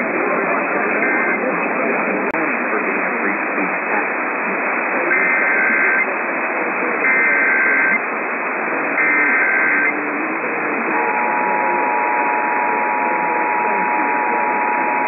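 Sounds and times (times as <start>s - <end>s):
radio static hiss: 0.0s - 15.0s
two-tone attention signal: 0.9s - 1.5s, 5.1s - 6.1s, 7.0s - 8.0s, 9.0s - 10.0s, 10.9s - 15.0s
data tone bursts: 5.1s - 6.1s, 7.0s - 8.0s, 8.9s - 10.0s, 10.8s - 15.0s.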